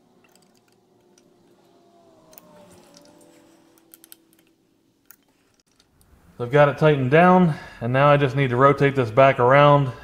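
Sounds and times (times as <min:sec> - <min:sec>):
held tones: 0:00.0 - 0:06.2.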